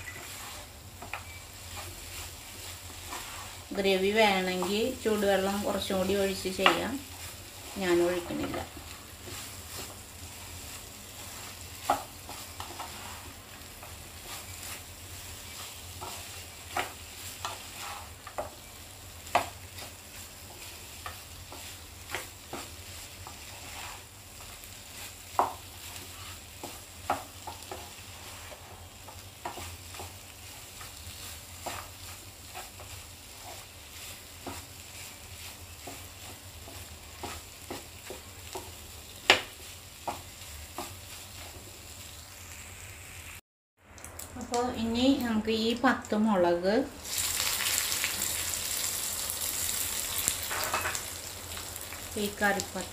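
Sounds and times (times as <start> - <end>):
spatula tapping and scraping pan: 0.0 - 3.6, 6.5 - 7.3, 8.1 - 41.7
chicken sizzling in a frying pan: 0.0 - 43.4, 47.0 - 52.9.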